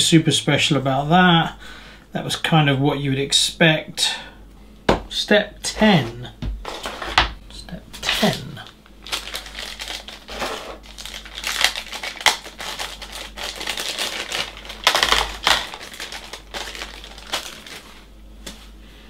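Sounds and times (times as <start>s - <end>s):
plastic packaging crinkling: 8.0s - 18.1s.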